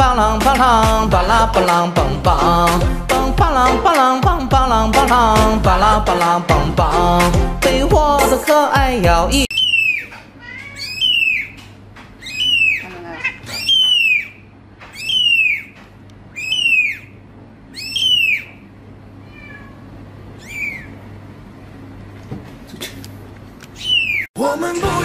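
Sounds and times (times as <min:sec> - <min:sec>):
kitten mewing: 0:09.7 - 0:11.5, 0:12.2 - 0:14.3, 0:19.3 - 0:20.9.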